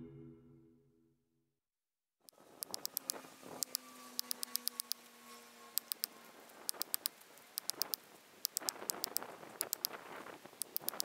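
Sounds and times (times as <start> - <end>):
faint high clicking: 5.8 - 11.0.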